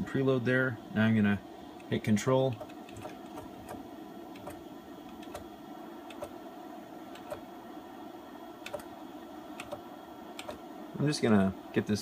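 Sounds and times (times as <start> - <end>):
steady low hum: 0.0 - 12.0
sharp mechanical clicks: 1.8 - 5.5, 6.1 - 6.4, 7.1 - 7.4, 8.6 - 8.9, 9.6 - 9.8, 10.4 - 10.6.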